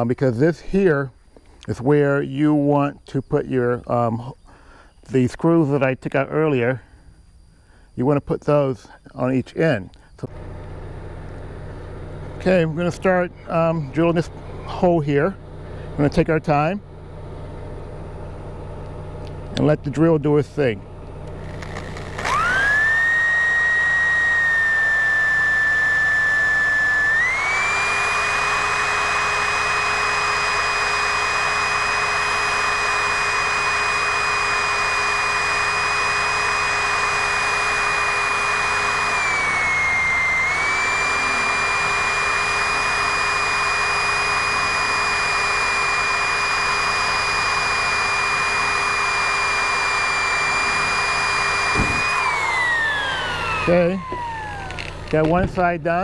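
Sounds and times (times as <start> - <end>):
electric drill whining: 20.8 - 55.8.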